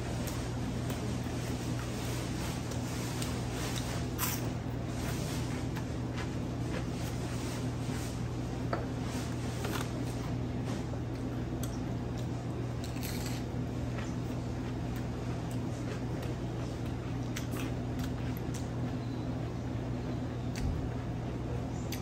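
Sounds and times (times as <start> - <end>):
low mechanical hum: 0.0 - 22.0
person chewing crunchy food: 11.2 - 18.7.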